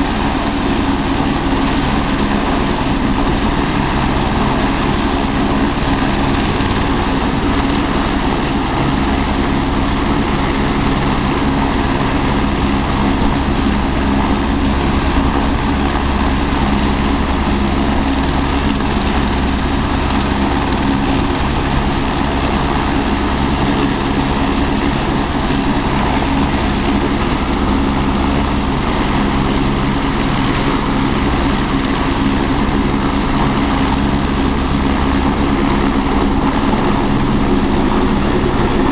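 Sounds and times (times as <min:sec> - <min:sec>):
helicopter turbine and rotor drone: 0:00.0 - 0:38.9.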